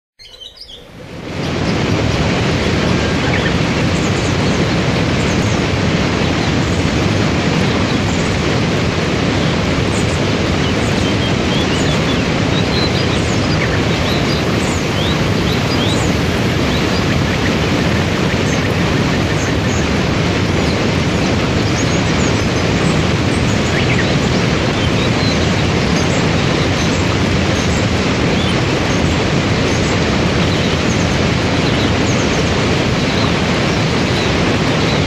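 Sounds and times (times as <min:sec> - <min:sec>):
faint birds chirping: 0:00.2 - 0:01.9, 0:09.4 - 0:35.0
rushing water of waterfall: 0:01.0 - 0:35.0.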